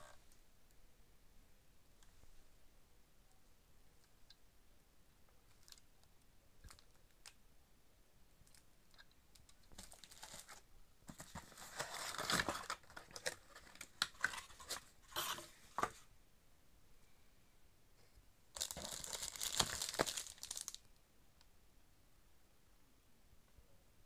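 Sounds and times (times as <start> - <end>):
plastic wrapping crinkling: 9.7 - 15.4, 18.6 - 20.9.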